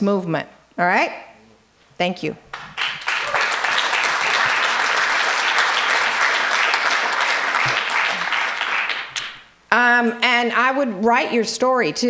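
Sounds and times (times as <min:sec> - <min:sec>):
audience applauding: 0:02.5 - 0:09.5.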